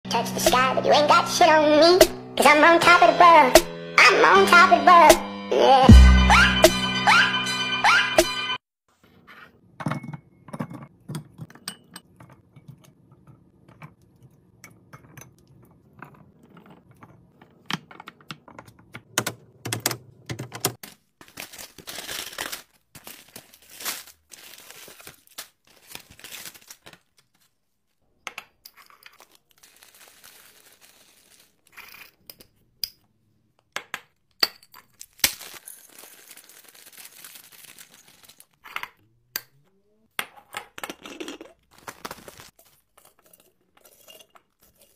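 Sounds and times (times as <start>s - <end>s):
glass jars clinking: 9.8s - 12.8s
packaging crinkling: 20.8s - 27.5s, 29.2s - 31.6s, 35.0s - 38.6s, 41.6s - 42.8s
peanuts rattling into jar: 34.9s - 38.6s.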